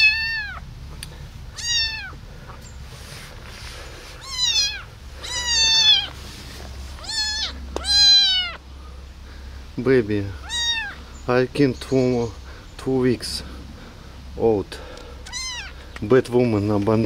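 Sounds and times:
kitten meowing: 0.0 - 0.6, 1.5 - 2.2, 4.2 - 6.2, 7.0 - 8.6, 10.4 - 11.0, 15.2 - 15.8.

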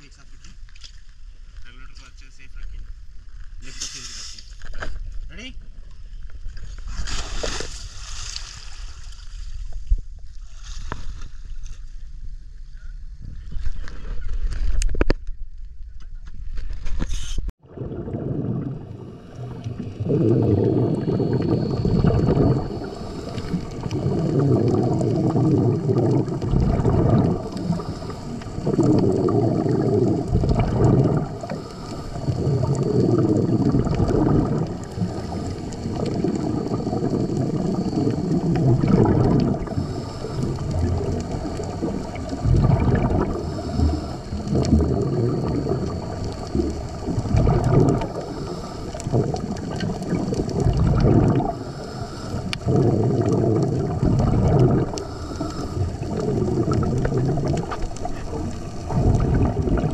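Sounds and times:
bubbles gurgling underwater: 17.6 - 59.9
diver breathing through regulator: 18.0 - 59.9.

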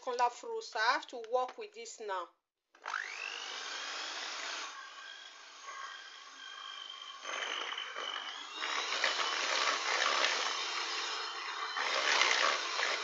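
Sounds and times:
electric hand mixer whirring: 2.8 - 13.0.

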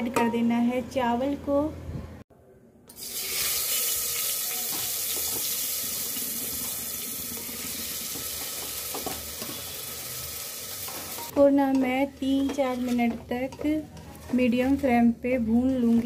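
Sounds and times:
rice sizzling in hot oil: 3.0 - 11.3.

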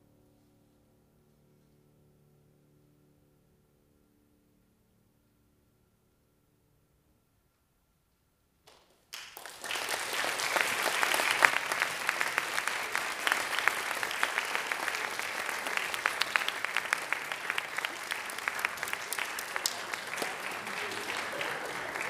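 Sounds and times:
audience applauding: 8.7 - 22.0.

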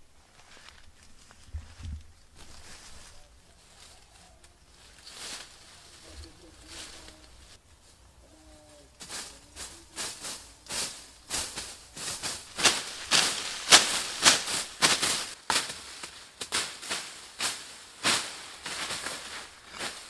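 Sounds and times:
blades slashing through undergrowth: 9.0 - 20.0.

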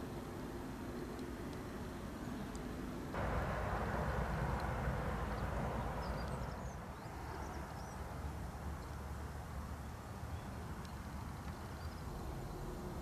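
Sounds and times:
distant road traffic hum: 0.0 - 13.0
faint bird chirps: 5.3 - 9.0.

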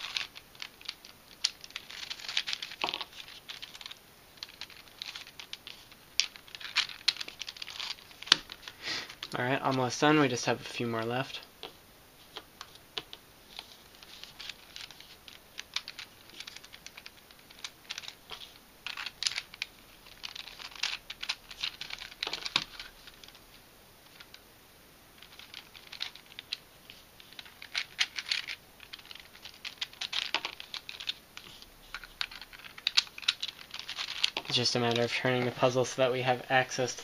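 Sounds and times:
plastic puzzle pieces clicking: 0.0 - 9.4, 11.6 - 23.4, 25.2 - 34.6.

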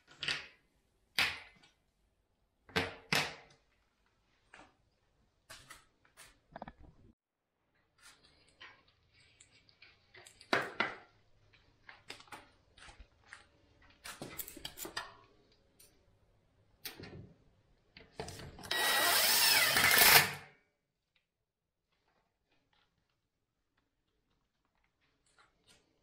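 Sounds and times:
power drill running: 18.7 - 20.4.

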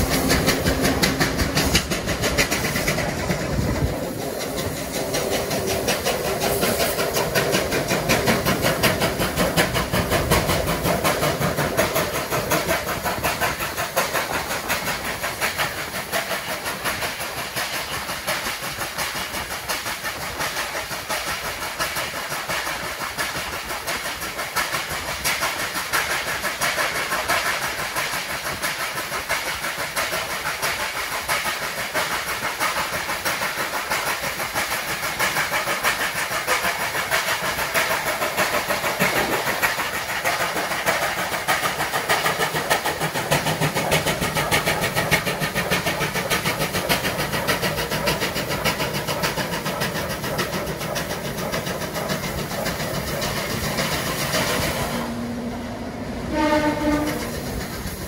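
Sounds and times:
train running at speed: 0.0 - 58.0.

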